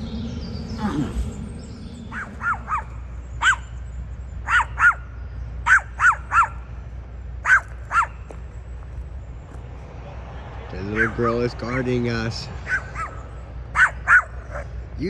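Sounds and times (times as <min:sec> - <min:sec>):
dog barking: 0:02.1 - 0:03.7, 0:04.4 - 0:06.7, 0:07.4 - 0:08.2, 0:11.0 - 0:11.2, 0:12.6 - 0:14.8.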